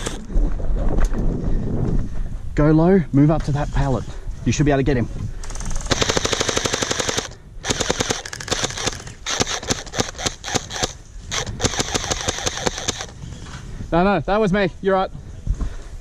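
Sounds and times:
gel blasters firing rapid bursts: 5.6s - 13.1s.

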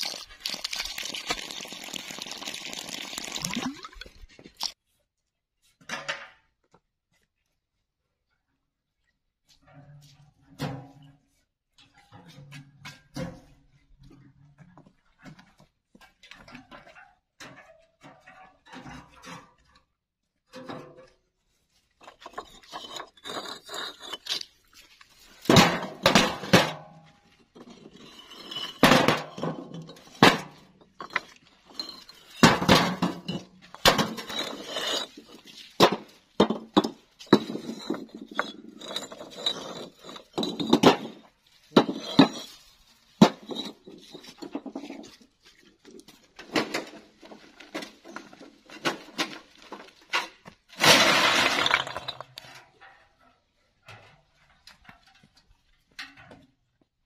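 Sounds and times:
clay bricks clinking: 22.0s - 26.1s, 27.4s - 52.5s
bricks clattering onto ground: 22.0s - 45.3s, 46.4s - 52.8s.

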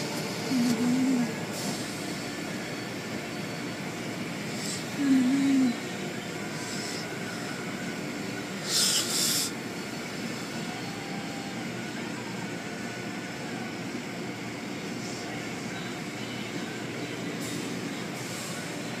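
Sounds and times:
car wash water and machinery: 0.0s - 19.0s
hiss of spray: 8.6s - 9.6s.

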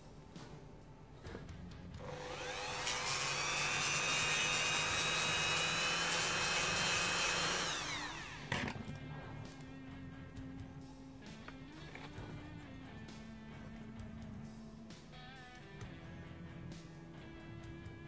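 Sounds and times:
rotary tool whining: 2.0s - 9.6s.

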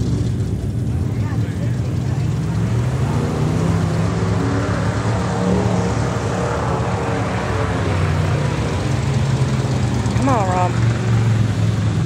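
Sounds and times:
quad bike engine running: 0.0s - 5.8s, 7.3s - 12.0s.

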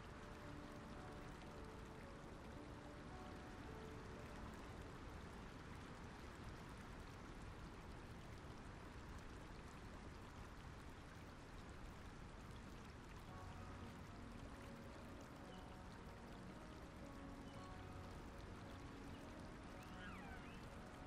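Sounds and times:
river water rushing: 13.3s - 21.0s.

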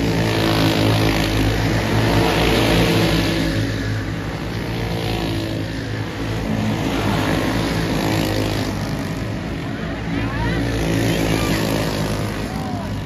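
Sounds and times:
racing kart engines buzzing: 0.0s - 13.0s.

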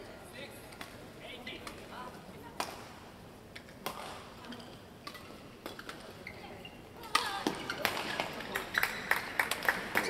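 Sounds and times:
hands clapping: 7.8s - 10.0s.

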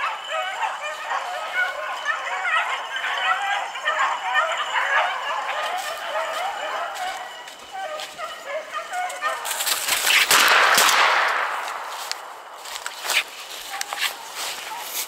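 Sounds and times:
beagles baying: 0.0s - 15.0s.

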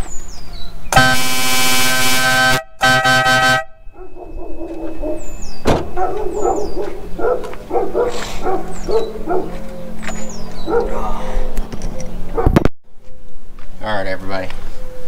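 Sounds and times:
air horn blast: 0.9s - 3.9s
dog barking: 3.9s - 5.3s, 5.9s - 9.7s, 10.6s - 11.3s, 12.3s - 12.6s.

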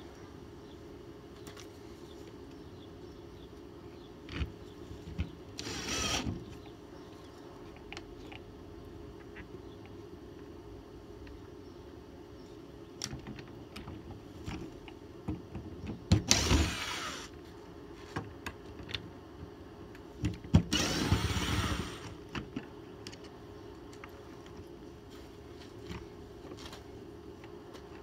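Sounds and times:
power driver running screws: 5.6s - 6.4s, 16.2s - 17.3s, 20.7s - 22.2s.

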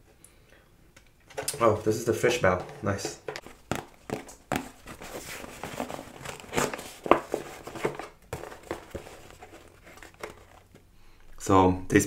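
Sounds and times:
paper packaging crinkling: 3.4s - 10.9s.

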